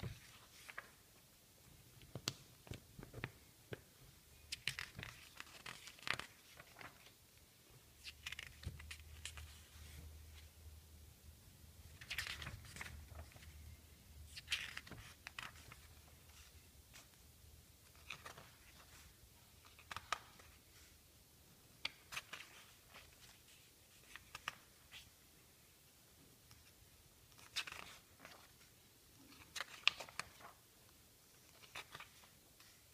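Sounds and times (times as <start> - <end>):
magazine pages turning: 0.0 - 1.1, 4.4 - 10.5, 11.9 - 17.2, 17.8 - 21.0, 21.8 - 25.1, 26.5 - 30.7, 31.3 - 32.9.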